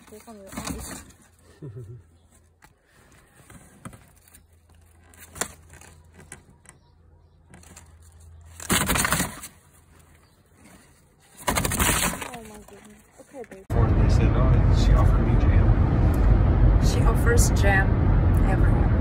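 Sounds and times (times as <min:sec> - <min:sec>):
bird scuffling in cardboard box: 0:00.0 - 0:01.4, 0:07.5 - 0:13.6.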